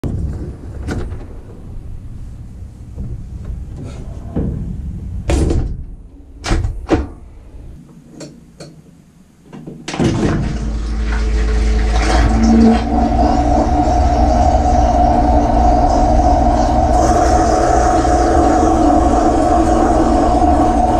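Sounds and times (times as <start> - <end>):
dishwasher motor humming: 10.0 - 20.9.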